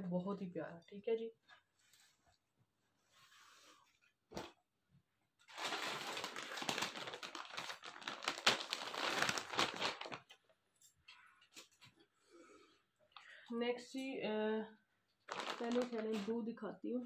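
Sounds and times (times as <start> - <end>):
plastic bag crinkling: 5.5 - 10.4, 15.3 - 16.3.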